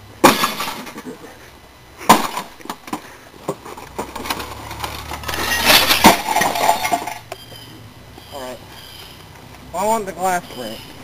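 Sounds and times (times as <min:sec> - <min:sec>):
television being smashed: 0:00.2 - 0:01.0, 0:02.1 - 0:02.8, 0:04.0 - 0:07.2.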